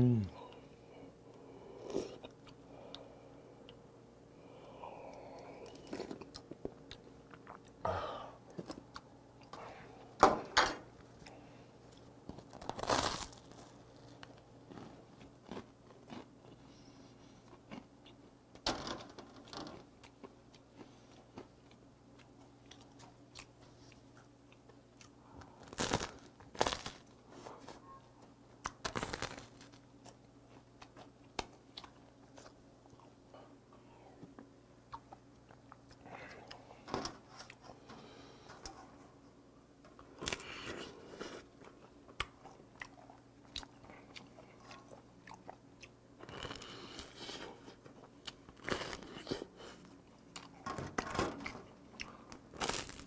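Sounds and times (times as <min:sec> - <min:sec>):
quiet chewing: 0:01.3 - 0:03.8, 0:04.5 - 0:07.8, 0:13.4 - 0:18.3, 0:19.8 - 0:26.8, 0:27.4 - 0:39.3, 0:39.9 - 0:50.6, 0:51.5 - 0:52.8
bread crust crunching: 0:12.3 - 0:16.6, 0:25.6 - 0:27.1, 0:28.6 - 0:32.6, 0:52.0 - 0:53.0.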